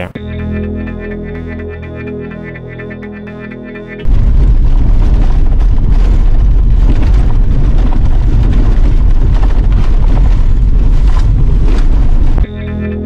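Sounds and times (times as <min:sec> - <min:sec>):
wind and road noise rumble: 0:04.0 - 0:12.5.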